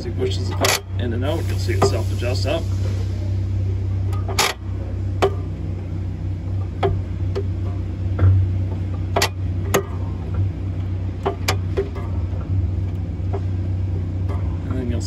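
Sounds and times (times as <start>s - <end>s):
low hum: 0.0s - 15.0s
clutch mechanism clicking: 6.5s - 13.5s.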